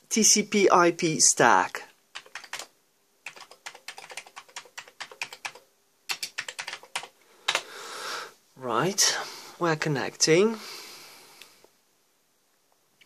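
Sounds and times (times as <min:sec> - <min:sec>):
typing on computer keyboard: 0:02.2 - 0:07.6.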